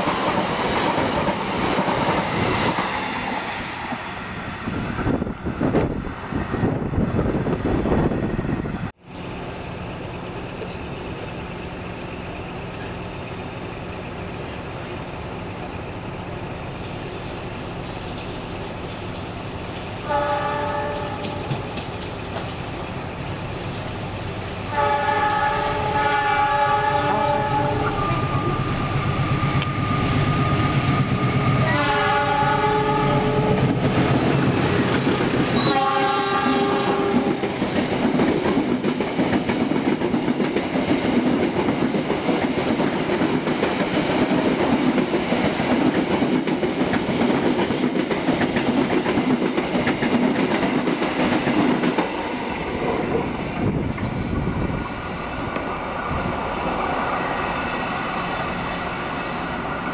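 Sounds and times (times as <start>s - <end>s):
train wheels on rails: 0.0s - 59.9s
locomotive horn: 20.0s - 21.5s, 24.7s - 28.8s, 31.6s - 33.8s, 35.6s - 37.5s.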